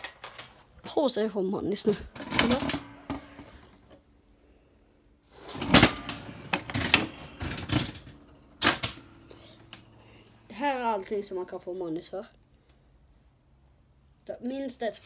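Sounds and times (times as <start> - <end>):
plastic toy machine clattering: 2.1 - 3.4, 5.4 - 9.8.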